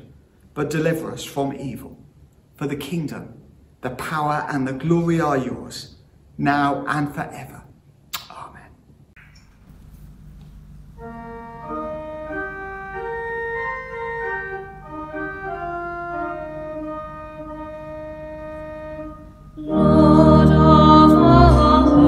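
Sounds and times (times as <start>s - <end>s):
church organ chords: 9.6s - 22.0s
woman singing a hymn: 19.6s - 22.0s.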